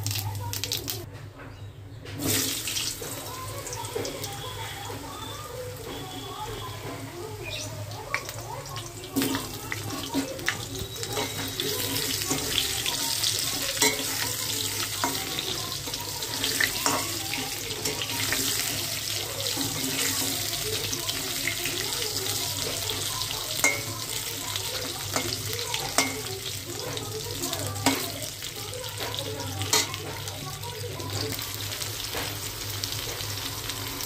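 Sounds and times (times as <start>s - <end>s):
potato wedges sizzling in oil: 0.0s - 1.1s, 2.2s - 34.0s
metal spatula clicking on pan: 13.7s - 14.3s, 25.1s - 26.3s.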